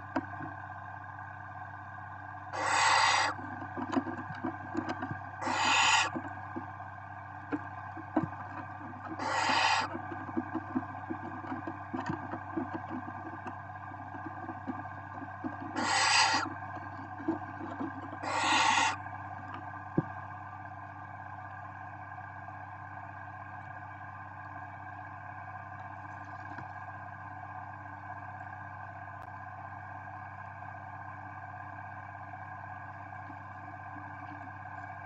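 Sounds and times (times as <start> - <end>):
steady low hum: 0.0 - 35.0
owl chicks hissing calls: 2.6 - 3.4, 5.4 - 6.3, 9.0 - 10.0, 15.6 - 16.5, 18.2 - 19.0
faint scratching on nest: 2.6 - 6.3, 8.6 - 13.4, 14.2 - 19.0.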